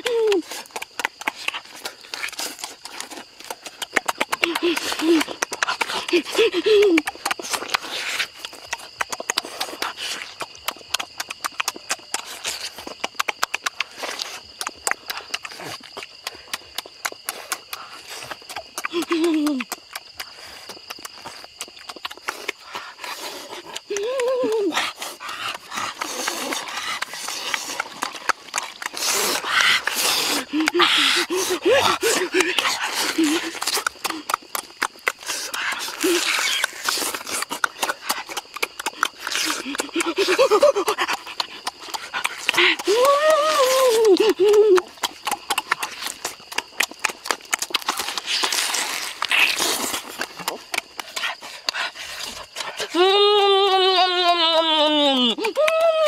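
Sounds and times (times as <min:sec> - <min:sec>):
wet smacking and chewing: 0:00.0 - 0:53.0
hissy mouth noise: 0:13.7 - 0:52.9
loud hissing slurps: 0:25.0 - 0:33.8.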